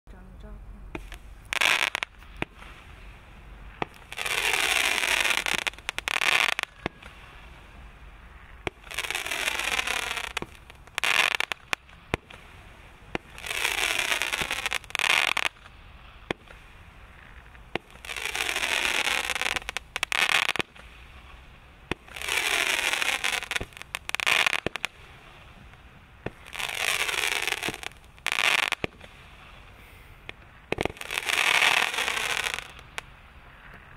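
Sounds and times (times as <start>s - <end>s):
firework crackling burst: 0.9s - 33.9s
firework rushing hiss: 0.9s - 33.9s.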